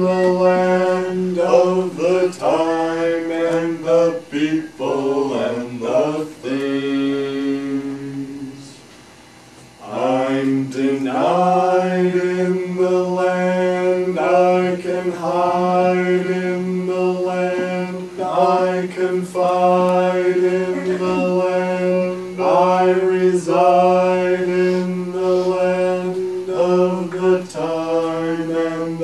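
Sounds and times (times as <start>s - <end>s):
band playing slow drone: 13.4s - 29.0s.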